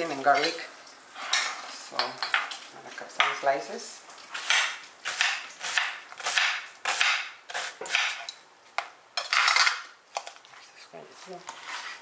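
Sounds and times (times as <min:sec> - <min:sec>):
knife slicing onion: 0:04.4 - 0:08.3.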